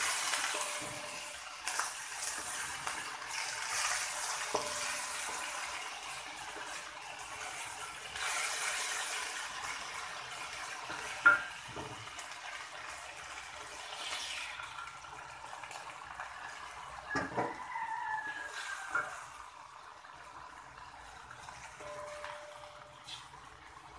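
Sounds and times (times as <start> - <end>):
wooden spatula scraping wok: 0.0 - 9.8, 17.1 - 19.3
food sizzling in a wok: 0.0 - 23.9.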